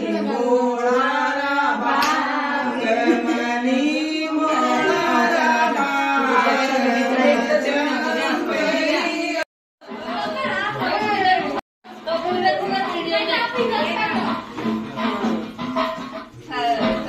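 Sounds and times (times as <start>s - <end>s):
women singing slow song: 0.0s - 9.4s.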